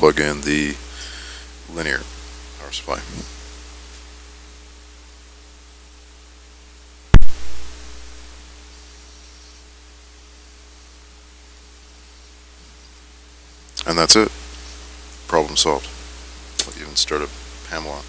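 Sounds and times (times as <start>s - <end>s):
low electrical hum and hiss: 0.0s - 18.0s
loud electrical pop: 7.1s - 8.4s, 16.6s - 16.8s.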